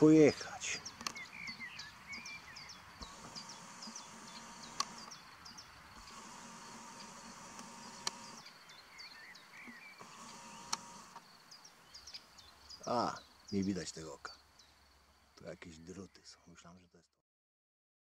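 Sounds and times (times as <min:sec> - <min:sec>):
high insect buzz: 0:00.0 - 0:15.4
birds chirping: 0:00.0 - 0:17.1
sharp clicks: 0:00.9 - 0:01.6, 0:03.0 - 0:05.2, 0:06.0 - 0:08.4, 0:09.6 - 0:11.2.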